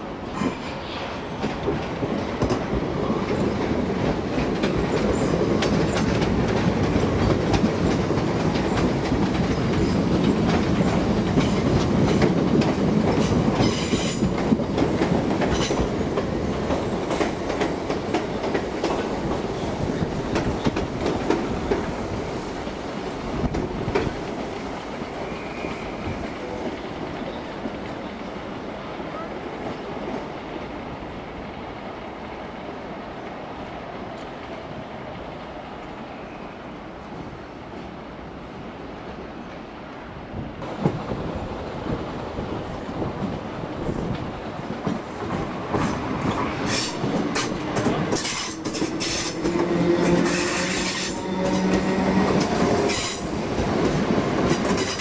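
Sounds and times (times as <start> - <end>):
train rumbling: 0.0 - 55.0
wheels clicking over rail joints: 1.4 - 21.9, 43.0 - 55.0.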